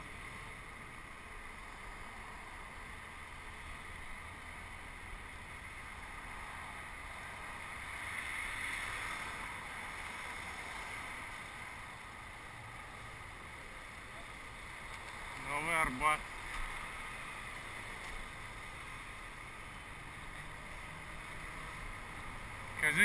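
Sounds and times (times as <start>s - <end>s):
hum of city traffic: 0.0s - 23.0s
bicycle tyre noise: 1.6s - 13.4s.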